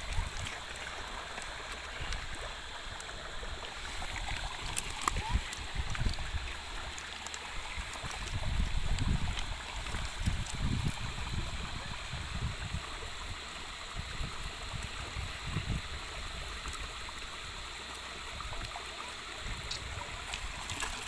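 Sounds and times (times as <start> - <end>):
river rushing over stones: 0.0 - 21.0.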